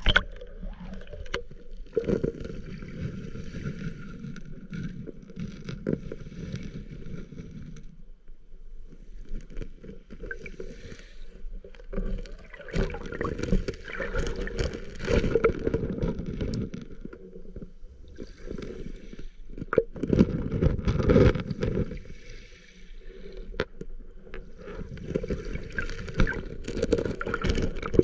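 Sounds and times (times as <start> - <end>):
stones clicking underwater: 0.0 - 2.8, 12.0 - 18.2, 24.9 - 28.0
muffled underwater rushing: 12.0 - 16.3.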